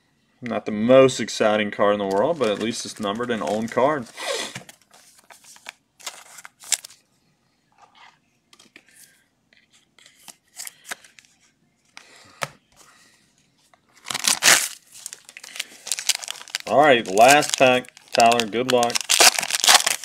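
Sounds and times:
trading cards rustling: 2.1s - 7.0s, 14.0s - 20.0s
foil wrapper crinkling: 14.0s - 20.0s.

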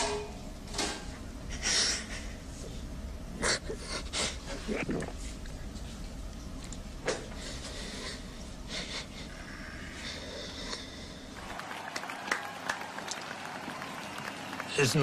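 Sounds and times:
low room hum: 0.0s - 15.0s
man crying and sniffing: 7.8s - 11.0s.

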